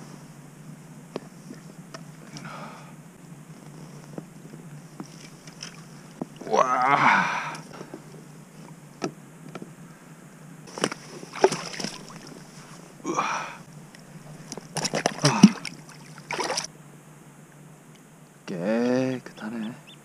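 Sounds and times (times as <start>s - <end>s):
water splashing and sloshing: 5.0s - 6.4s, 10.7s - 12.9s, 14.2s - 16.7s.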